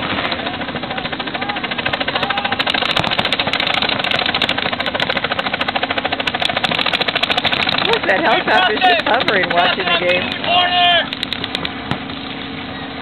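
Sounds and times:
paintball markers popping rapidly: 0:02.2 - 0:10.5, 0:11.1 - 0:12.1.

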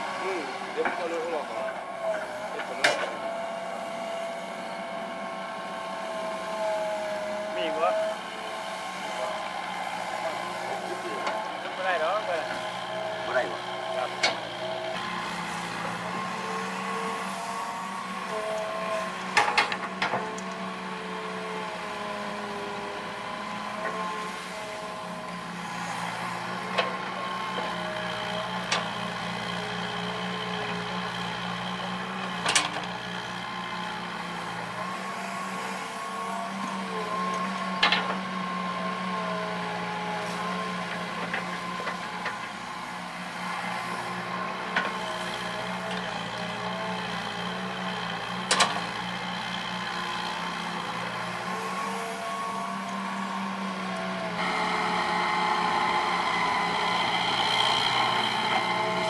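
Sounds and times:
excavator diesel engine running: 0:00.0 - 0:59.0
hydraulic whine shifting in pitch: 0:54.2 - 0:59.0.

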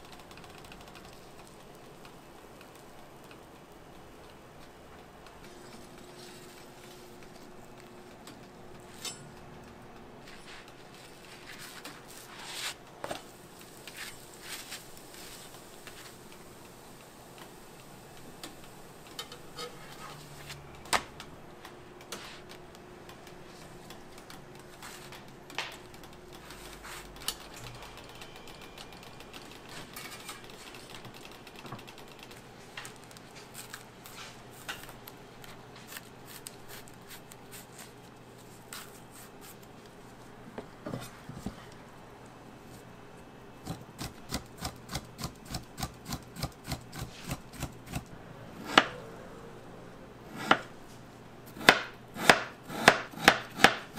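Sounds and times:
spatula scraping on griddle: 0:19.3 - 0:20.5.

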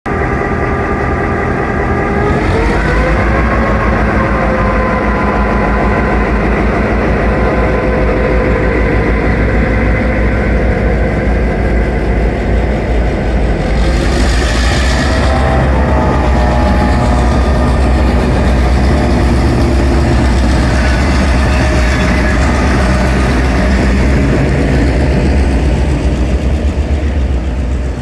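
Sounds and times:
diesel locomotive engines pulling away: 0:00.1 - 0:28.0.

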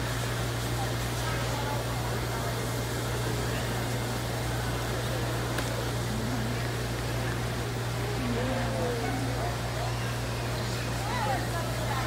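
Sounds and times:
crowd murmur: 0:00.0 - 0:12.0
faint distant voices: 0:00.0 - 0:12.0
hall hum: 0:05.2 - 0:10.3.

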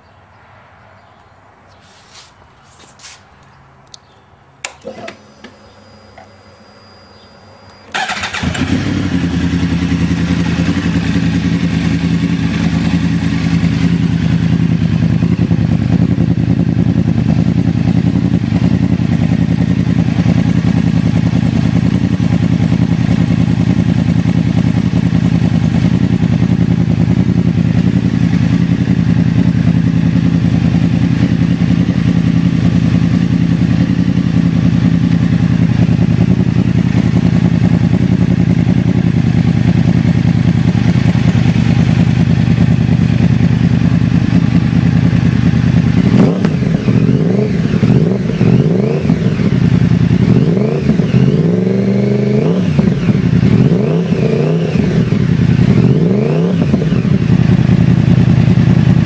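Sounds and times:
clicks: 0:03.4 - 0:06.5
faint steady whine: 0:04.6 - 0:08.0
motorcycle engine idling: 0:05.6 - 0:59.0.

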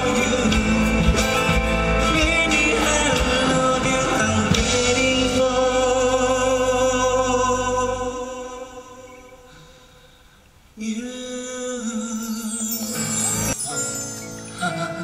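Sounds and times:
person singing a song: 0:00.0 - 0:09.2, 0:10.8 - 0:15.0.

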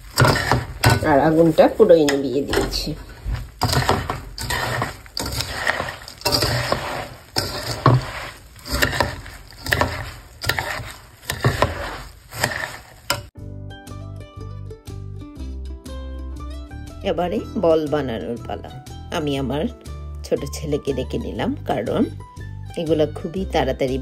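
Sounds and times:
puffed rice rustling: 0:00.0 - 0:13.3
spatula scraping a steel wok: 0:00.0 - 0:13.3.

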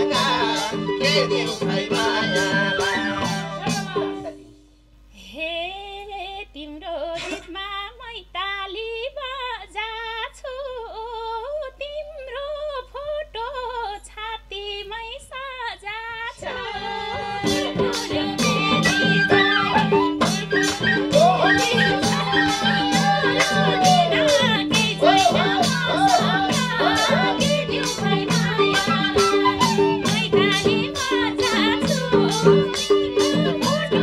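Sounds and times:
woman singing: 0:00.0 - 0:04.4, 0:05.1 - 0:34.0
hand drums: 0:00.0 - 0:04.7, 0:16.4 - 0:34.0
harmonium: 0:16.6 - 0:34.0.

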